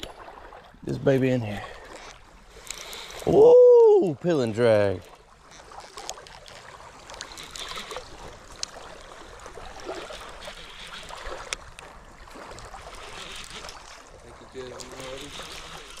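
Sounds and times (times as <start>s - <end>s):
water lapping gently: 0.0s - 16.0s
faint clicks: 1.8s - 3.3s, 5.0s - 9.0s, 10.1s - 11.9s.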